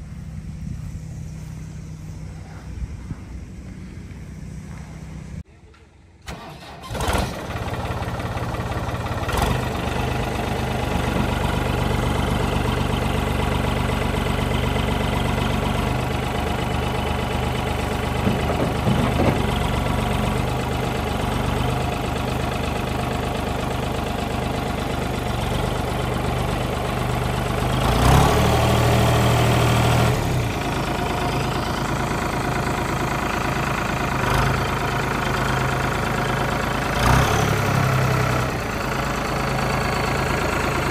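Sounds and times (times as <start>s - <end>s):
tractor diesel engine running: 0.0s - 5.4s, 6.0s - 40.9s.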